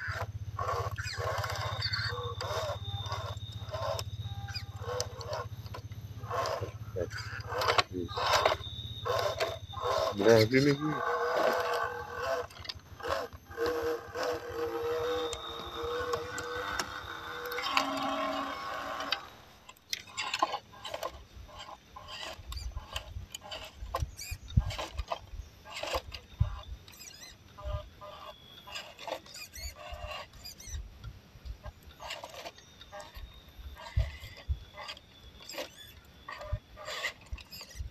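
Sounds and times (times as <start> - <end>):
electric motor and gears whining: 0.0 - 37.9.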